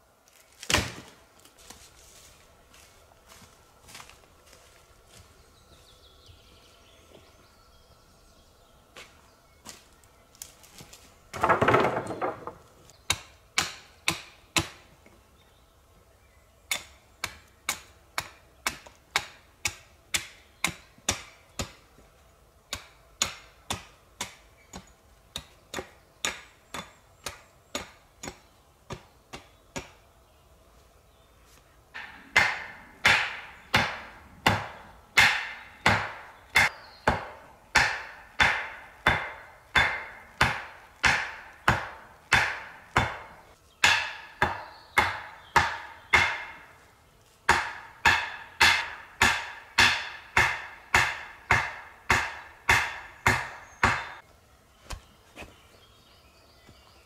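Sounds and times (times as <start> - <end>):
axe chopping wood: 0.6 - 1.1, 11.3 - 14.8, 16.7 - 21.8, 22.7 - 30.0, 32.0 - 46.6, 47.5 - 54.2
wooden poles clattering: 10.6 - 12.9.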